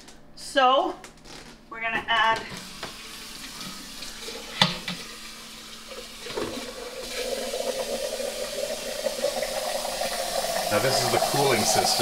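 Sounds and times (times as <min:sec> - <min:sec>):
water pouring into a glass jug: 0:05.6 - 0:12.0.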